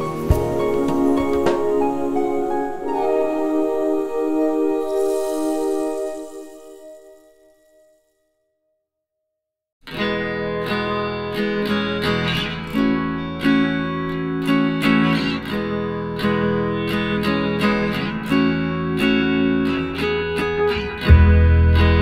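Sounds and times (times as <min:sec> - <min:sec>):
guitar strumming and picking: 0:00.0 - 0:04.8, 0:09.8 - 0:22.0.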